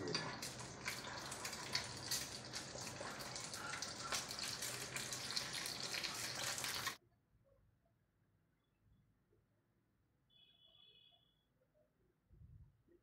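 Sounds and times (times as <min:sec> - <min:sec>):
egg sizzling in a frying pan: 0:00.0 - 0:07.0.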